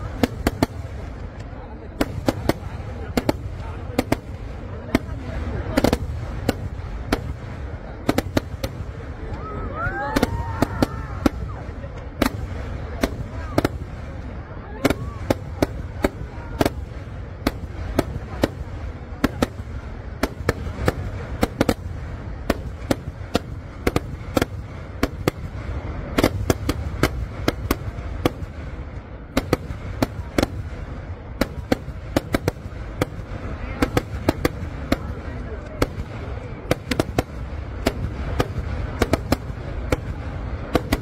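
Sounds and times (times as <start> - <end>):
continuous low rumble: 0.0 - 41.0
fireworks loud bangs: 0.0 - 41.0.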